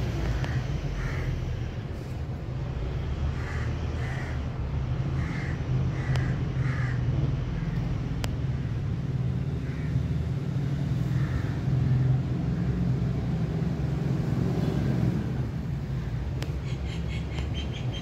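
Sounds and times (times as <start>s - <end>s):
steady low rumble: 0.0s - 14.3s
crows cawing: 0.2s - 1.7s, 3.3s - 7.9s, 9.6s - 10.2s, 11.1s - 12.2s.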